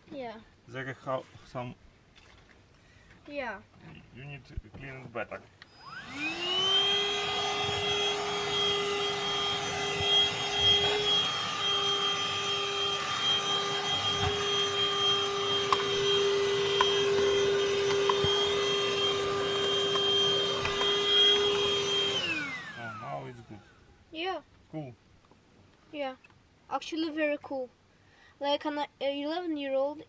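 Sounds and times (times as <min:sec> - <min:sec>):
vacuum motor whine: 0:05.6 - 0:23.8.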